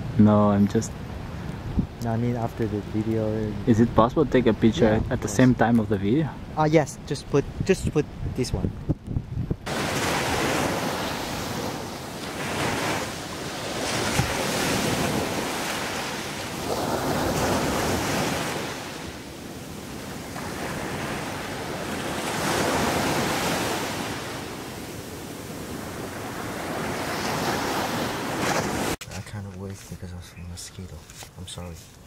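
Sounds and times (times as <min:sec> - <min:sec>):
surf washing up a beach: 0:09.6 - 0:29.0.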